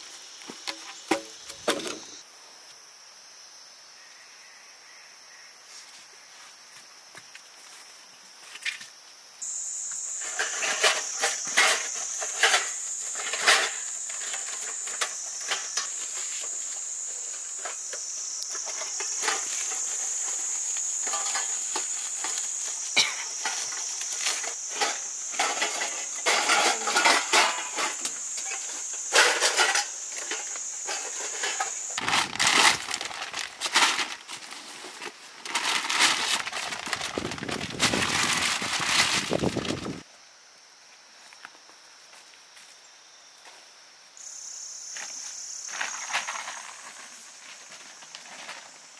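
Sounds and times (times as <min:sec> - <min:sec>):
high-pitched insect drone: 0:00.2 - 0:34.3, 0:44.2 - 0:48.9.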